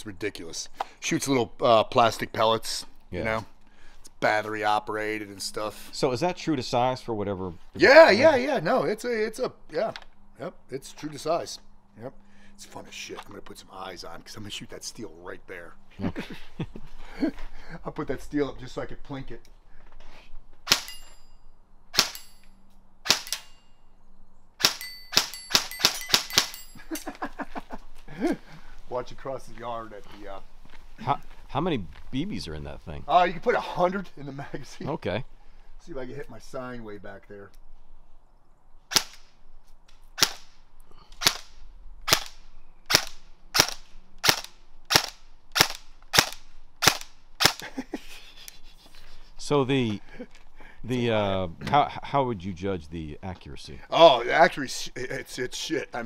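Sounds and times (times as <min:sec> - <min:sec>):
airsoft rifle shots: 0:20.6 - 0:21.0, 0:21.9 - 0:22.3, 0:23.0 - 0:23.6, 0:24.6 - 0:26.6, 0:38.9 - 0:39.3, 0:40.2 - 0:40.6, 0:41.2 - 0:47.6
pellet pinging on steel: 0:22.0 - 0:23.8, 0:24.6 - 0:26.9.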